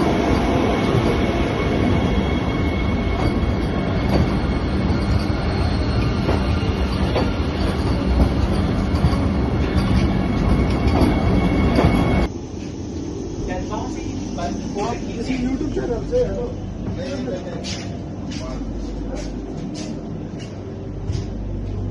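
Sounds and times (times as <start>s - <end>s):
train cars rumbling: 0.0s - 21.9s
train wheel clicks: 6.0s - 12.3s
faint high whine: 9.0s - 17.4s.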